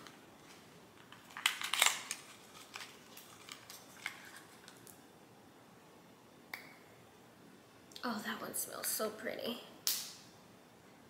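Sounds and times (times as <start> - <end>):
packaging rustling: 0.0 - 5.0
soft clicks of packaging: 0.0 - 5.0.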